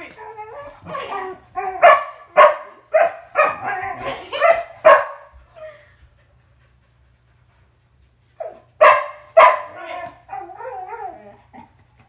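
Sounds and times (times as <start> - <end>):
dog barking: 1.8 - 3.7, 4.3 - 5.3, 8.8 - 9.8
dog whining howl: 10.3 - 11.6.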